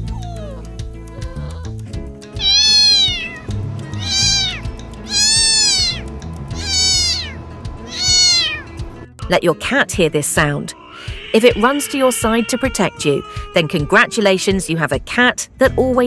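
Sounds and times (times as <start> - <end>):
background music: 0.0 - 16.0
cat meowing: 2.4 - 8.8, 10.7 - 14.4.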